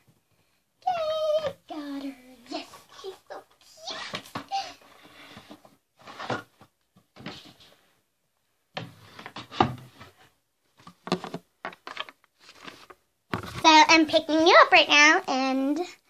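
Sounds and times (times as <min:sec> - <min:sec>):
knocks and scrapes on microphone: 0:08.8 - 0:13.7.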